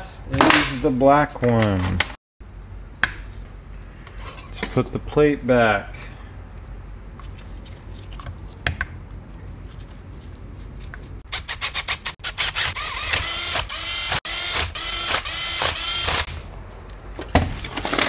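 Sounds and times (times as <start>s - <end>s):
electric screwdriver whining in pulses: 11.3s - 16.3s.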